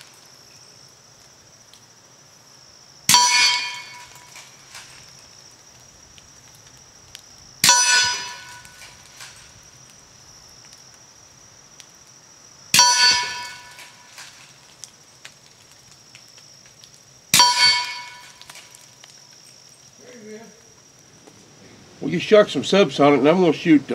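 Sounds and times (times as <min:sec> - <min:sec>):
bullets clanging on steel target: 0:03.1 - 0:05.0, 0:07.6 - 0:09.4, 0:12.8 - 0:14.5, 0:17.4 - 0:18.7.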